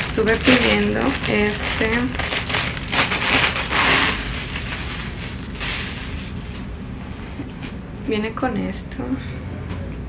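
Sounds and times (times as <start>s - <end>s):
plastic packaging crinkling: 0.0s - 6.8s.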